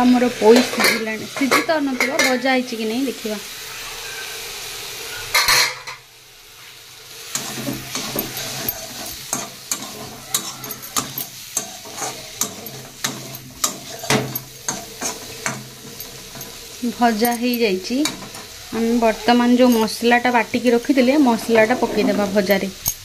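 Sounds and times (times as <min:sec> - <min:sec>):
vegetables sizzling in a pan: 0:00.0 - 0:23.0
metal spatula scraping a pan: 0:07.2 - 0:23.0.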